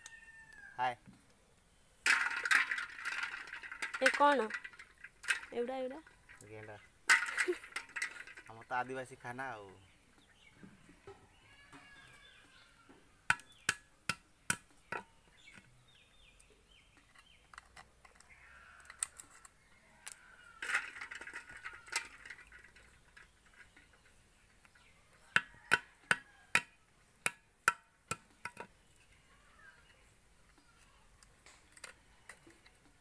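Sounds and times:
snail shells cracking on concrete: 2.0 - 9.2, 13.3 - 33.0.

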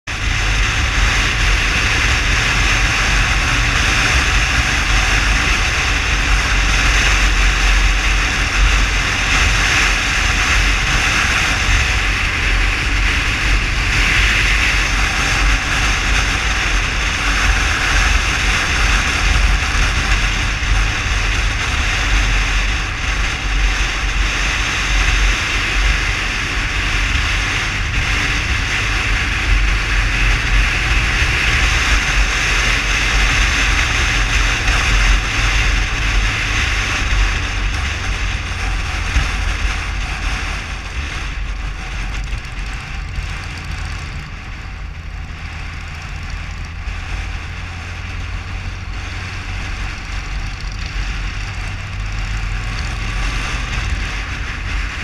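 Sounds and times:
motorcycle road noise: 0.0 - 55.0
wind on microphone: 0.1 - 55.0.

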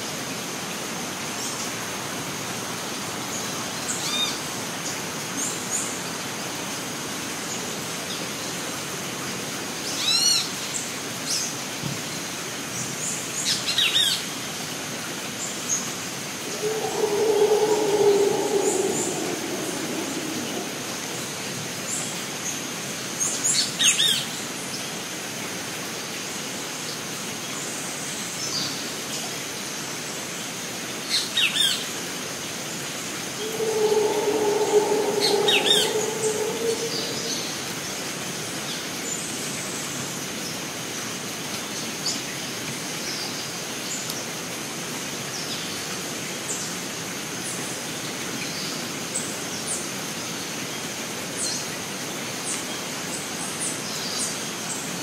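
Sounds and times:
birds chirping: 16.4 - 21.1, 33.4 - 37.7
high-pitched insect drone: 16.4 - 21.1, 33.4 - 37.8
low long animal call: 16.4 - 21.6, 33.3 - 38.0.

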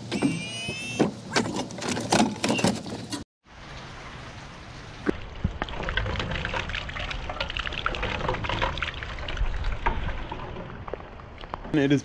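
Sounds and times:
water pouring from downspout: 3.5 - 11.5
water splashing on pavement: 3.5 - 11.6.

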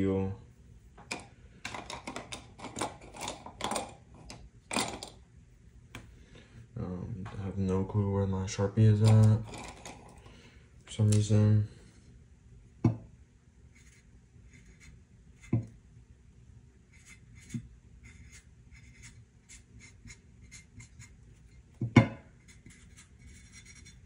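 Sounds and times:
marker writing on metal plate: 16.9 - 21.2, 22.4 - 24.0.

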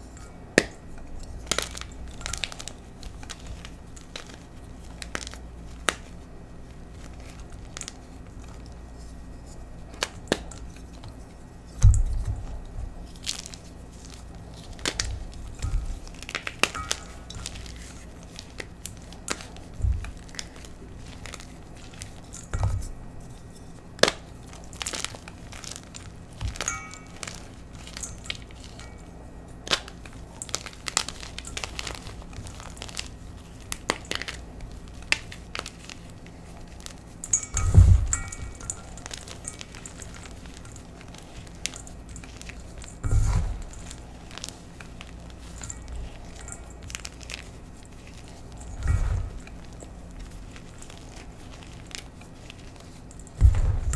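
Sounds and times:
chalk crushed in metal bowl: 11.8 - 53.9
dull thumps: 53.4 - 53.9.

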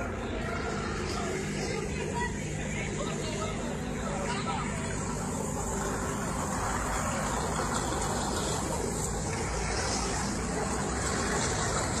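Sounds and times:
armoured vehicle engines running: 0.0 - 12.0.

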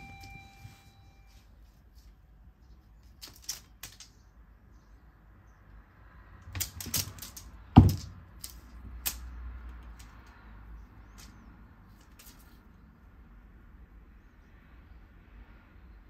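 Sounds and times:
cat paws tapping on wooden floor: 6.5 - 10.4
heavy thump on floor: 7.8 - 8.2.

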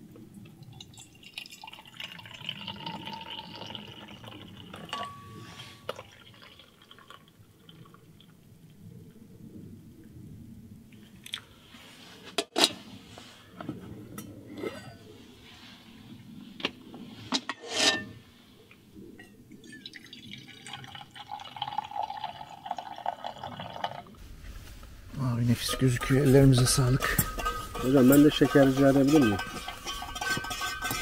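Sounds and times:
tea pouring into a glass: 0.7 - 8.0, 19.6 - 24.1
glasses and dishes clinking: 4.8 - 6.1, 25.6 - 31.0.

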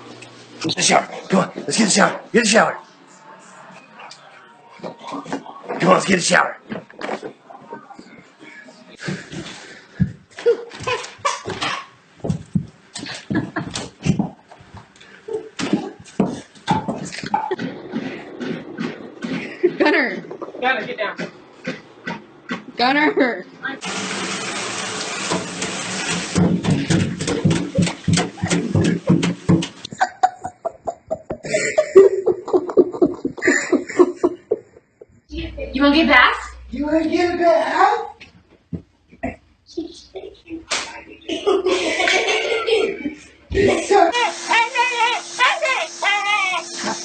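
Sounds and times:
person laughing: 10.4 - 11.6, 13.0 - 14.3, 27.3 - 35.2, 41.2 - 45.1
rapid thumps: 15.6 - 23.0, 26.4 - 30.0
dog grunting and huffing: 17.0 - 22.8.

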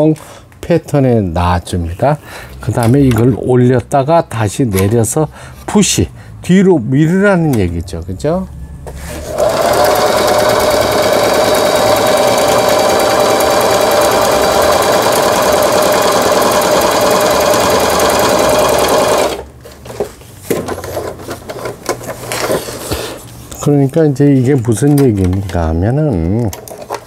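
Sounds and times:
electric sewing machine running: 9.2 - 19.5
handling noises: 19.6 - 27.0.

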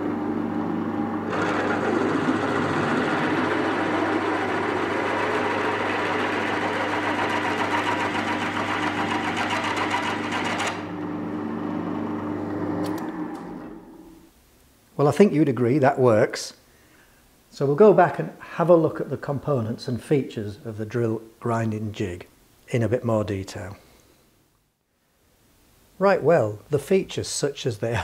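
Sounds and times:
drill motor hum: 1.2 - 14.0
drill boring into steel: 1.3 - 10.9.

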